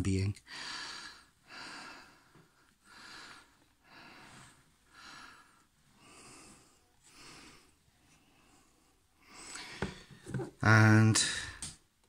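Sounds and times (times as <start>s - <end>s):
faint breathing: 0.4s - 10.4s.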